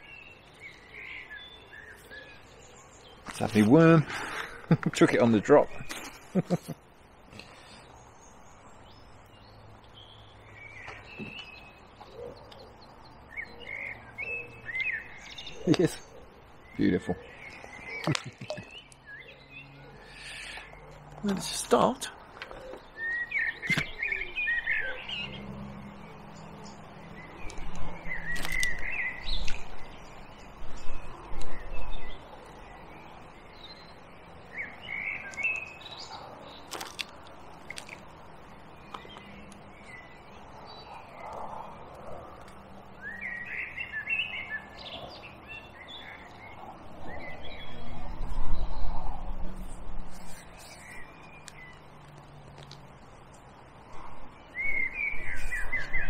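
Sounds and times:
small birds chirping: 0:00.0 - 0:56.0
sharp clicks: 0:18.0 - 0:19.0.

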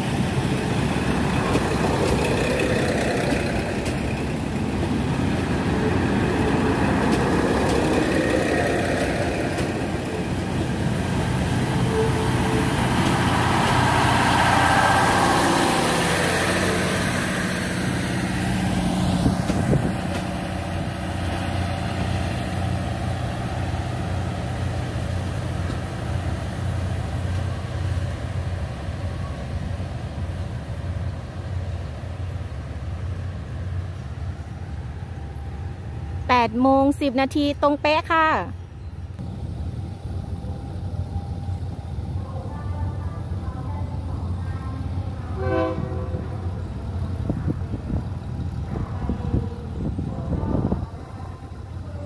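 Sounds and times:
diesel train rumbling: 0:00.0 - 0:52.0
train horn toot: 0:11.8 - 0:12.8, 0:45.2 - 0:46.5.

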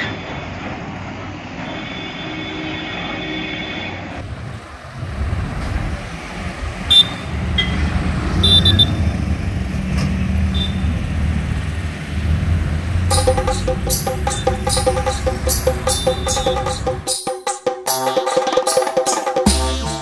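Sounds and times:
traffic engines rumbling: 0:00.0 - 0:17.1
car horn beeps: 0:06.9 - 0:07.8, 0:08.4 - 0:09.1, 0:10.5 - 0:10.9
music: 0:13.1 - 0:20.0.

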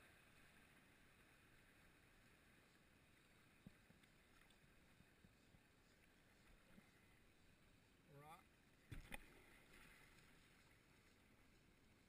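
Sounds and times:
faint steady water hiss: 0:00.0 - 0:12.0.

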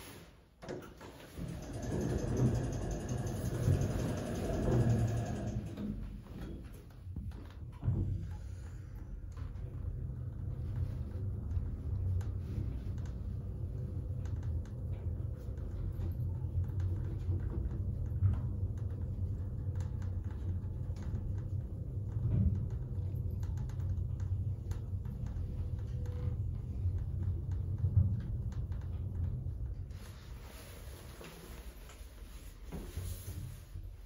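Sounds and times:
light rattles and clicks of doors: 0:00.6 - 0:34.0
elevator car humming and rumbling: 0:00.7 - 0:34.0.

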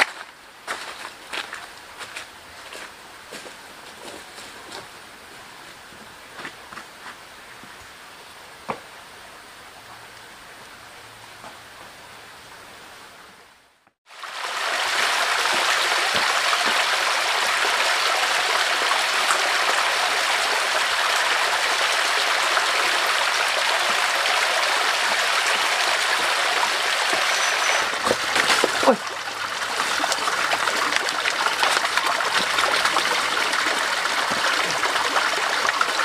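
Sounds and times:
stream rushing over rocks: 0:14.1 - 0:36.0.

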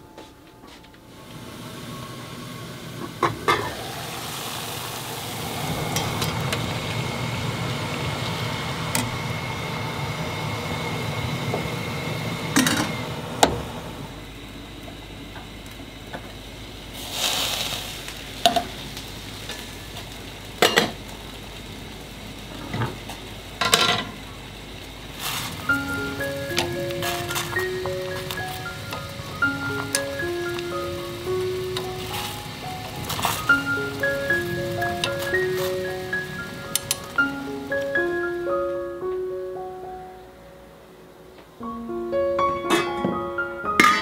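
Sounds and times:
metal cookware clinking: 0:23.6 - 0:24.1, 0:42.7 - 0:43.1, 0:43.8 - 0:44.0
pot lid clinking: 0:43.8 - 0:44.0.

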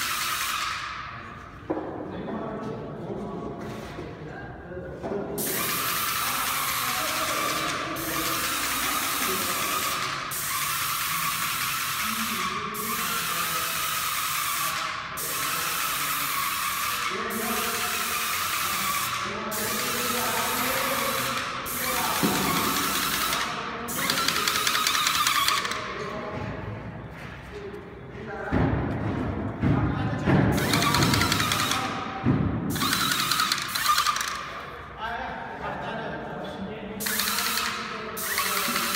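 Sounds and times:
paint spray gun hissing: 0:00.0 - 0:01.0, 0:05.4 - 0:25.8, 0:30.6 - 0:31.9, 0:32.7 - 0:34.4, 0:37.0 - 0:38.9
piston pump clatter: 0:30.5 - 0:31.9, 0:32.7 - 0:34.4, 0:37.0 - 0:38.9.

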